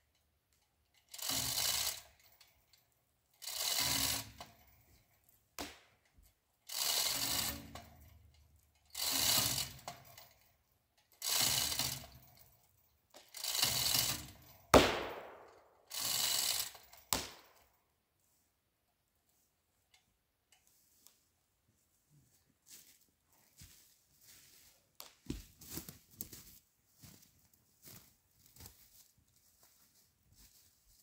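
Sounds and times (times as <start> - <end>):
ratchet clicking: 0.1 - 5.2, 6.6 - 14.7, 15.9 - 17.1
chain links rattling: 0.8 - 5.4, 6.6 - 14.7
sharp crack: 14.7 - 15.9, 17.1 - 17.6.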